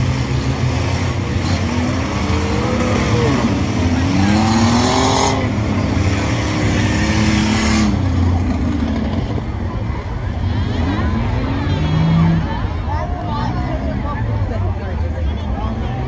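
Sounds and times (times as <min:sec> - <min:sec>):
racing car engines droning and revving: 0:00.0 - 0:16.0.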